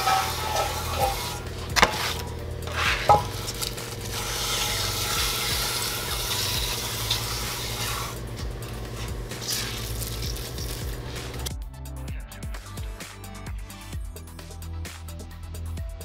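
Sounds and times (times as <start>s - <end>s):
stone knocking on metal: 0.0s - 3.6s
stone scraping on metal: 0.0s - 10.6s.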